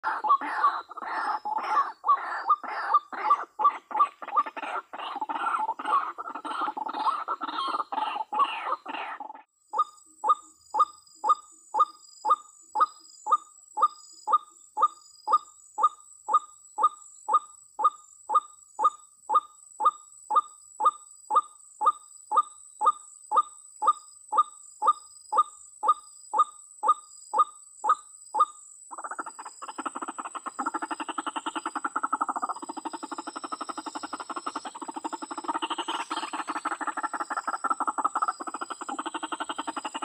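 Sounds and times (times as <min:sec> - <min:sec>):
waterhen calling: 0:00.0 - 0:09.4, 0:29.0 - 0:40.0.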